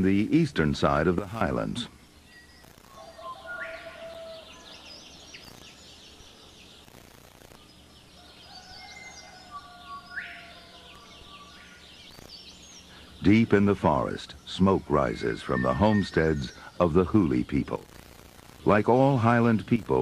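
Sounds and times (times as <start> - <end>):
forest ambience: 0.0 - 20.0
birds chirping and whistling: 0.9 - 17.8
rising sweeping bird call: 2.3 - 6.8, 8.1 - 17.0.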